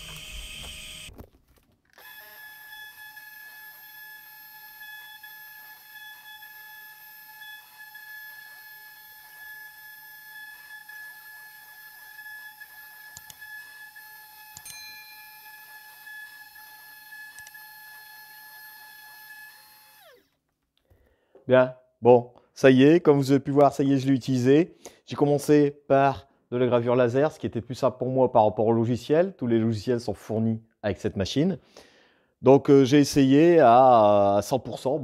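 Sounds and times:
spindle motor whine: 0:00.0 - 0:01.2, 0:02.0 - 0:20.4
bit cutting wood: 0:00.0 - 0:01.3, 0:02.0 - 0:20.4.

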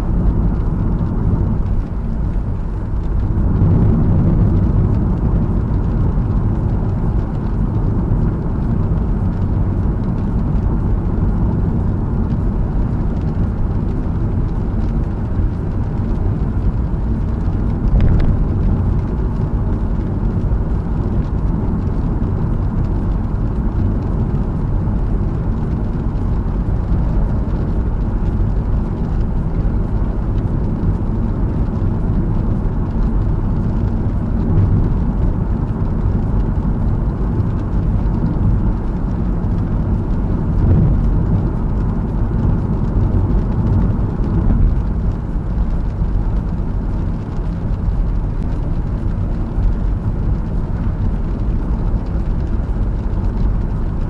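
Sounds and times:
car engine running: 0:00.0 - 0:54.0
tyres rumbling on wet road: 0:00.0 - 0:54.0.

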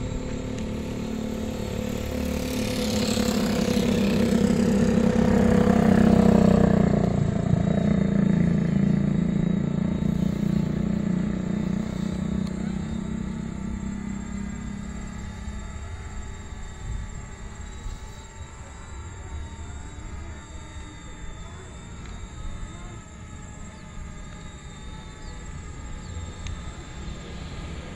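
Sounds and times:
motorcycle passing by: 0:00.0 - 0:18.5
steady low hum: 0:00.0 - 0:27.9.

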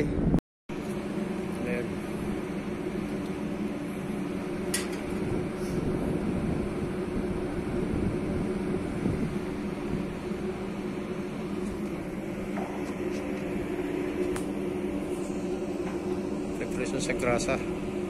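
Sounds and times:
machinery droning: 0:00.0 - 0:18.0.

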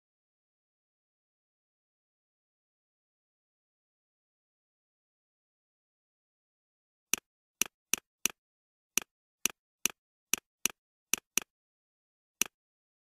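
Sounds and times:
computer mouse clicking: 0:07.2 - 0:08.4, 0:09.0 - 0:11.5.

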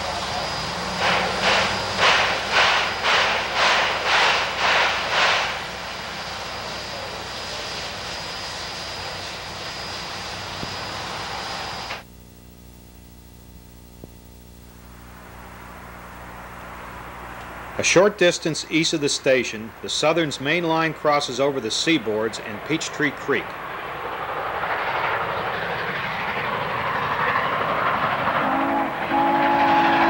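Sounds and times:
steam locomotive chuffing: 0:00.0 - 0:12.0, 0:17.7 - 0:30.0
low hum: 0:12.0 - 0:17.8.

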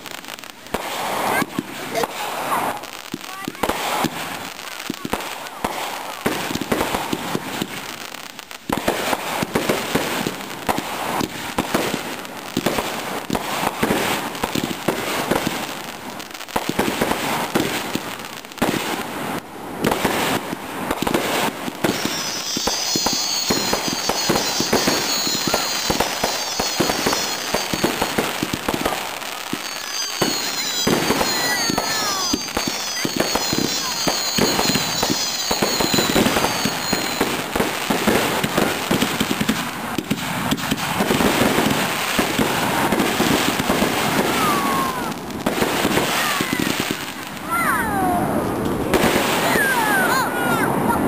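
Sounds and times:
fireworks bangs and crackling: 0:00.0 - 0:51.0
high firework whistles: 0:00.0 - 0:51.0
lower falling whistle: 0:21.9 - 0:28.4, 0:29.5 - 0:37.4.

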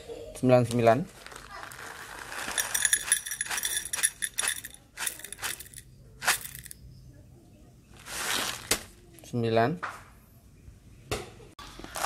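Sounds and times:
coffee beans clattering in metal bowl: 0:02.0 - 0:06.8.

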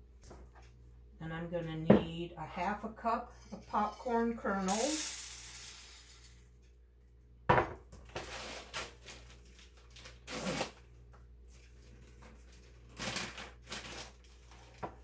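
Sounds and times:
cup knocking on countertop: 0:07.5 - 0:07.9.

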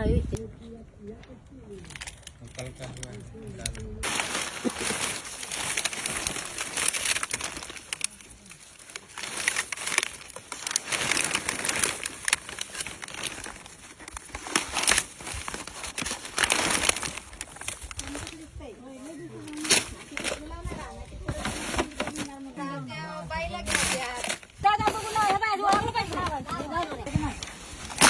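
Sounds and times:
dry straw crackling: 0:01.2 - 0:22.5
plastic sheeting rustling: 0:04.0 - 0:22.8, 0:23.6 - 0:28.0.

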